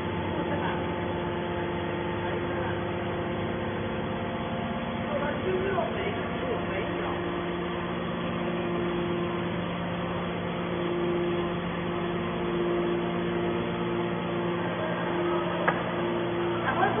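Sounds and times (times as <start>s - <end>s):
hydraulic power unit humming: 0.0s - 17.0s
higher tone: 10.7s - 17.0s.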